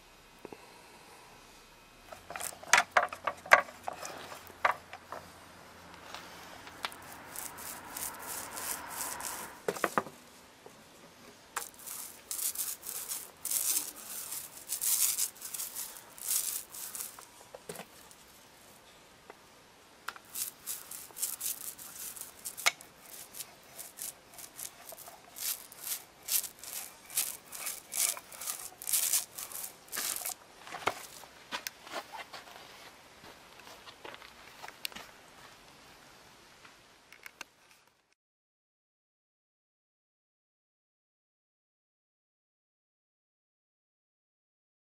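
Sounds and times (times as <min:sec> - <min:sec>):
paint roller rubbing: 0:06.2 - 0:10.0, 0:11.6 - 0:18.3, 0:20.2 - 0:31.2.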